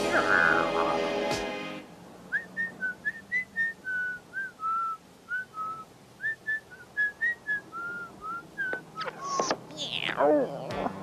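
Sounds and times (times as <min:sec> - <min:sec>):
person whistling a tune: 0:02.3 - 0:09.1.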